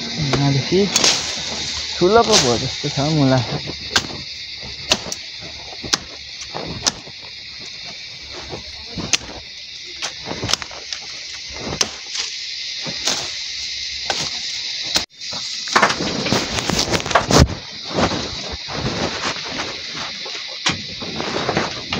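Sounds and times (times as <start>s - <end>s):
leaves rustling: 0.0s - 21.9s
steady high hiss: 0.0s - 21.9s
grass stalks snapping: 0.2s - 13.4s.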